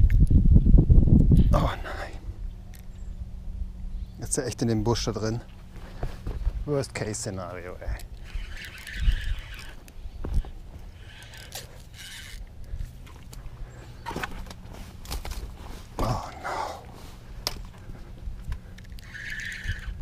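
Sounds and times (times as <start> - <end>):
wind rumbling on microphone: 0.0 - 6.8, 7.7 - 20.0
microphone handling clicks and scrapes: 5.4 - 6.7, 7.8 - 16.3.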